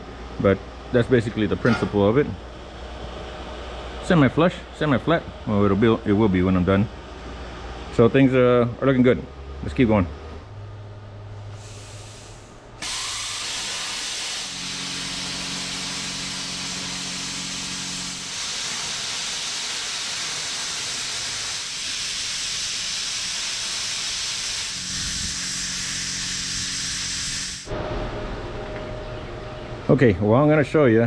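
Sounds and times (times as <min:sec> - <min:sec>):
low machine hum: 0:00.0 - 0:13.5, 0:14.4 - 0:21.6, 0:24.5 - 0:31.0
plasma cutter hissing: 0:11.6 - 0:27.7.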